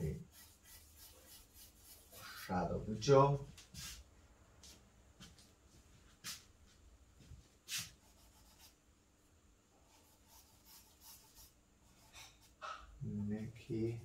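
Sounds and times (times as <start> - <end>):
charcoal scratching on paper: 0.0 - 2.6, 7.7 - 8.8, 9.8 - 12.7.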